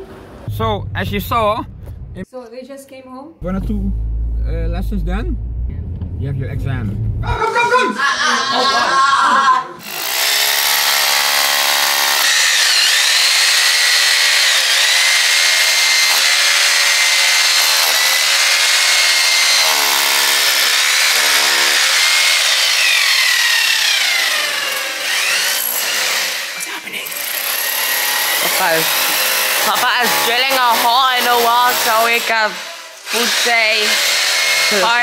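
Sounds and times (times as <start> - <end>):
hammer drill boring into masonry: 9.8 - 35.0.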